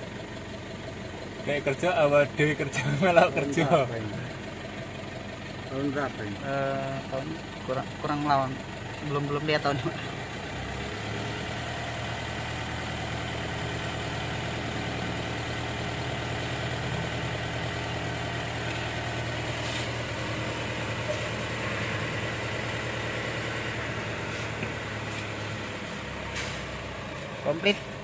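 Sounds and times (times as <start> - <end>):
diesel engine idling: 0.0 - 28.0.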